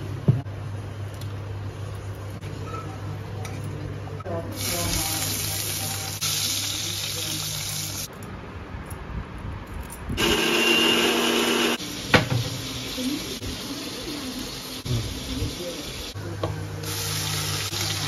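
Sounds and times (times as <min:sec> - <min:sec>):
onions sizzling in hot oil: 0:04.6 - 0:08.1, 0:11.5 - 0:16.2, 0:16.8 - 0:18.0
mixer grinder running: 0:10.2 - 0:11.8.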